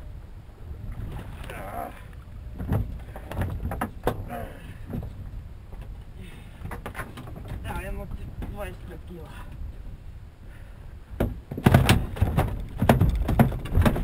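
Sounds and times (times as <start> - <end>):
wind rumble on microphone: 0.0 - 14.0
knocks against boat hull: 11.2 - 14.0.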